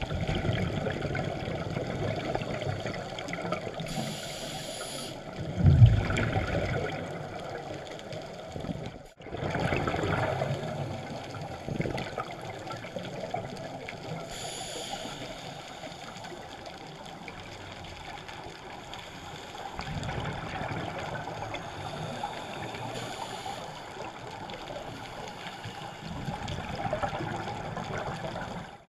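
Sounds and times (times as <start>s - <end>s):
muffled underwater noise: 0.0s - 28.8s
gurgling regulator bubbles: 0.0s - 28.9s.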